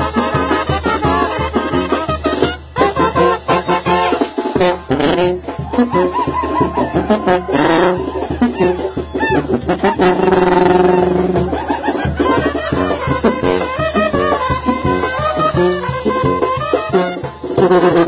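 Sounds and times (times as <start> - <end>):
trumpets and trombones: 0.0 - 18.0
sousaphone bass: 3.2 - 17.0.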